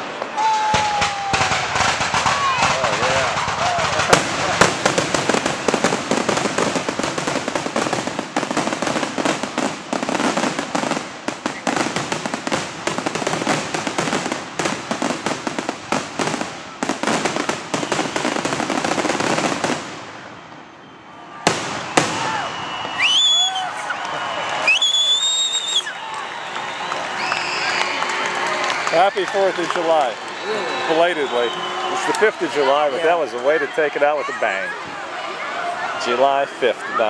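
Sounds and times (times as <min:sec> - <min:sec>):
firework shell bursts and crackling: 0:00.0 - 0:20.2
sharp firework bangs: 0:00.0 - 0:20.2, 0:21.5 - 0:22.9.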